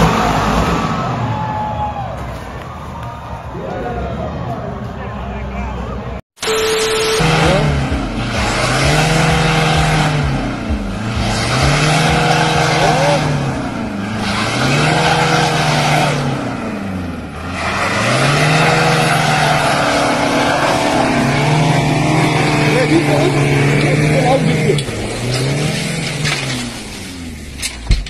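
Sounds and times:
car engine revving hard: 0:00.0 - 0:01.2, 0:06.4 - 0:27.5.

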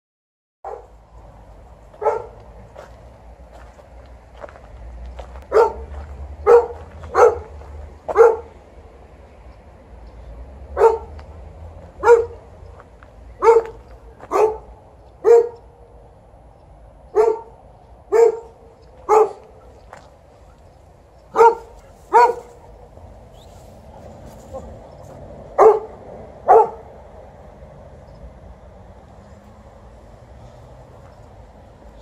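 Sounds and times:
dog barking: 0:00.6 - 0:01.0, 0:02.0 - 0:02.4, 0:05.5 - 0:08.5, 0:10.8 - 0:11.1, 0:12.0 - 0:12.4, 0:13.4 - 0:15.6, 0:17.2 - 0:19.7, 0:21.3 - 0:22.6, 0:25.6 - 0:26.9.

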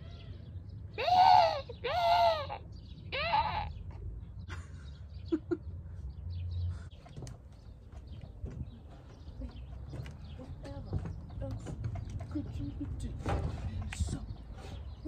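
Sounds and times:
person imitating crow caws: 0:01.0 - 0:03.8.

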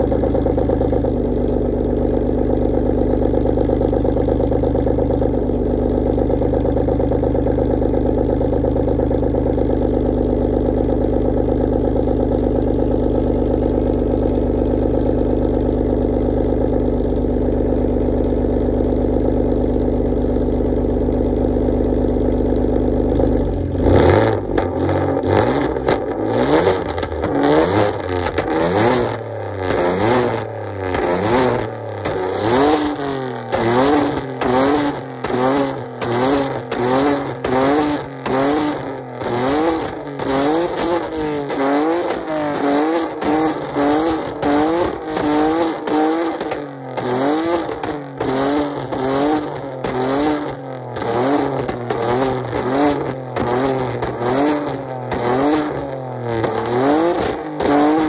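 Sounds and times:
car engine idling and revving: 0:00.0 - 0:58.0
exhaust crackling pops: 0:28.0 - 0:58.0.

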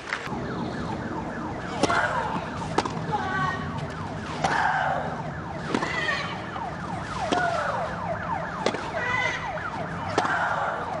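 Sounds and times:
tennis ball being struck: 0:02.6 - 0:03.0, 0:08.6 - 0:08.9, 0:10.1 - 0:10.4.

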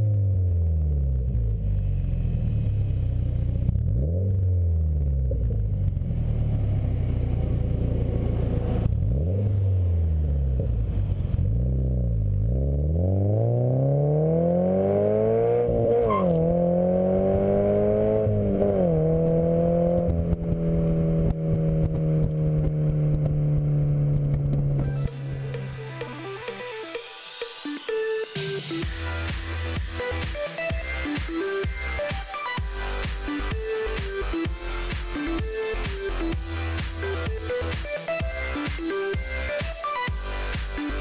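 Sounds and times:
car engine revving and accelerating: 0:00.0 - 0:26.2.

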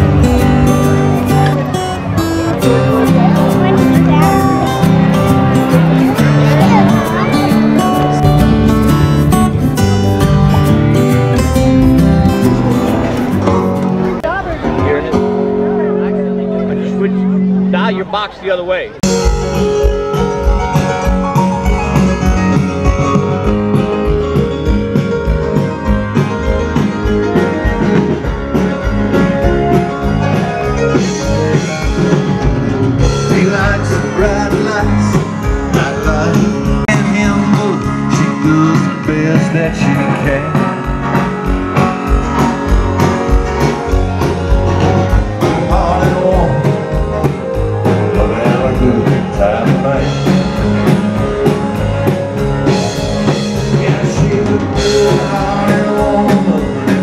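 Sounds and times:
live rock band playing: 0:00.0 - 0:57.0
drum beat: 0:19.0 - 0:57.0
person singing: 0:33.0 - 0:41.2, 0:44.8 - 0:51.6, 0:52.6 - 0:57.0.

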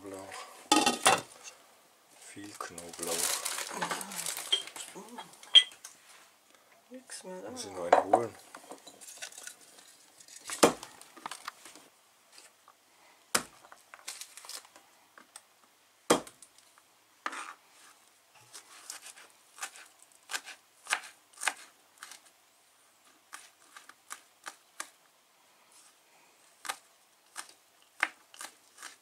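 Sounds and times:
garlic skins crinkling: 0:02.4 - 0:05.6, 0:09.0 - 0:11.8, 0:13.6 - 0:14.8, 0:26.6 - 0:29.0.

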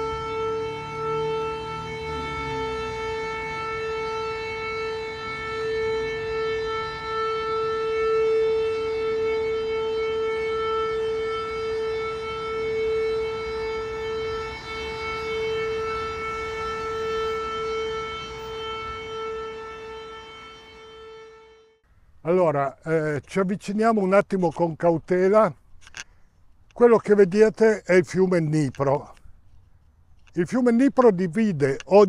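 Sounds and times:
air-raid siren steady tone: 0:00.0 - 0:21.8.

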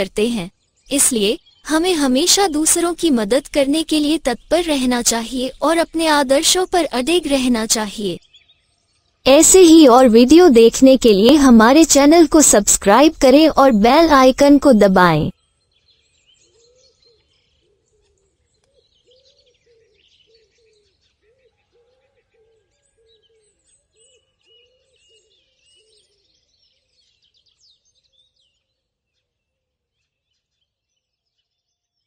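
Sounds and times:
high bird chirps and twitters: 0:00.1 - 0:08.4.

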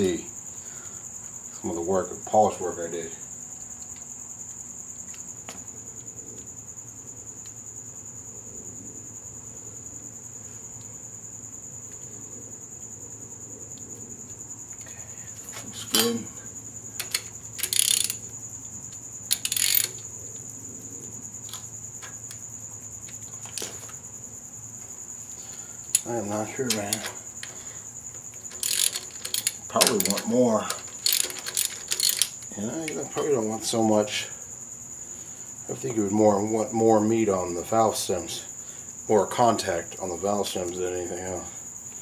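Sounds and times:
hand tools clinking on metal: 0:15.8 - 0:16.2, 0:17.0 - 0:18.2, 0:26.0 - 0:27.6, 0:28.5 - 0:33.2.

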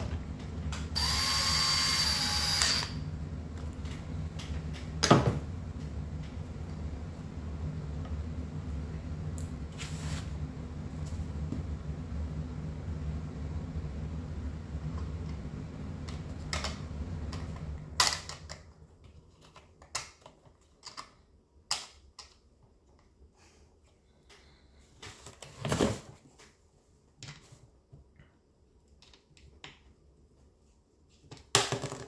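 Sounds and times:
low steady hum: 0:00.0 - 0:25.4.

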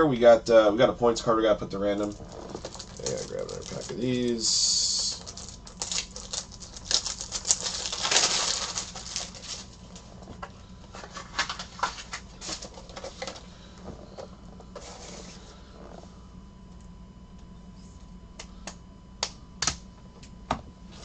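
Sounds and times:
plastic rustling: 0:01.9 - 0:15.5.

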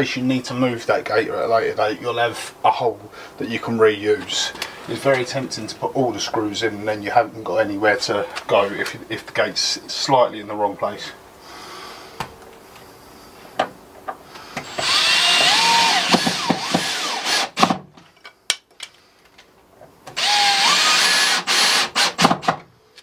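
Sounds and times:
cordless drill whining: 0:14.6 - 0:17.6, 0:20.2 - 0:22.3.

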